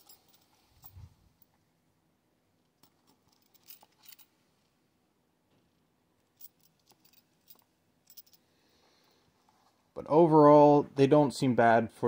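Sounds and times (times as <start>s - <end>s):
metal buckles clinking: 0.0s - 1.6s, 2.7s - 4.4s, 6.2s - 9.2s.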